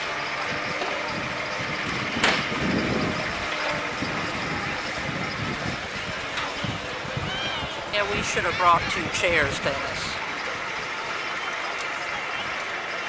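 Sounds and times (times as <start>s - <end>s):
crowd chatter: 0.0s - 13.0s
machine hum: 0.0s - 13.0s.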